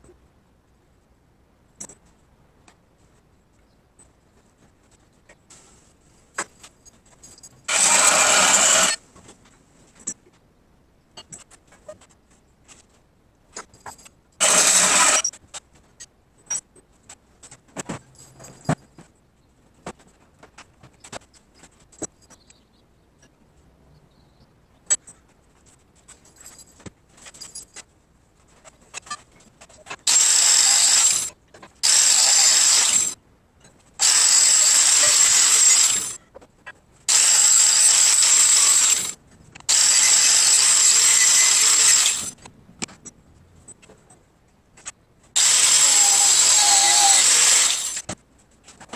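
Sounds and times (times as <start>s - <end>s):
band saw cutting steel: 7.7s - 9.0s, 14.4s - 15.3s, 30.1s - 33.2s, 34.0s - 36.2s, 37.1s - 42.3s, 45.4s - 48.1s
metal clinks and knocks: 13.5s - 22.7s, 24.8s - 30.0s.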